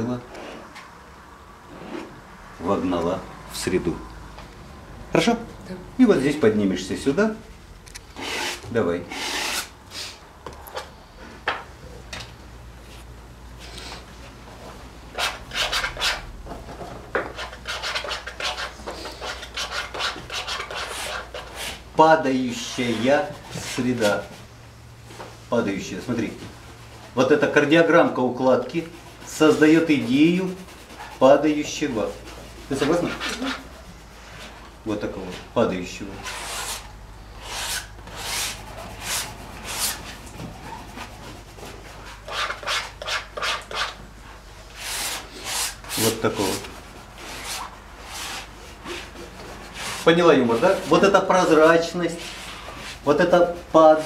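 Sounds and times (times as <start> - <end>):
palette knife scraping paint: 17.3 - 21.8, 28.6 - 34.6, 36.2 - 44.0.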